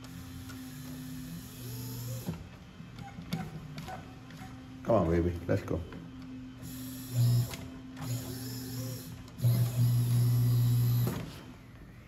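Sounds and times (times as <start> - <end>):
sewing machine motor hum: 0.0 - 5.3, 6.2 - 11.6.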